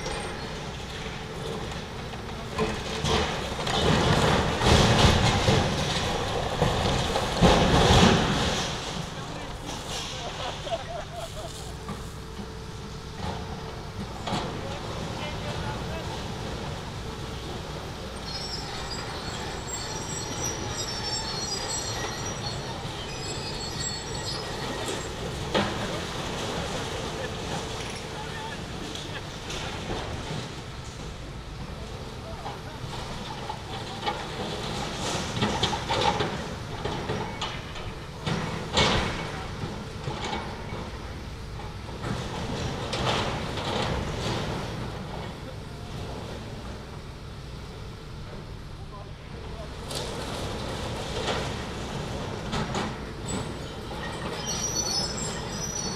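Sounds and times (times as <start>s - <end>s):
excavator engine rumbling: 0.0s - 55.9s
rubble crash: 2.6s - 9.2s
high-pitched metallic squealing: 18.1s - 25.4s, 53.4s - 55.9s.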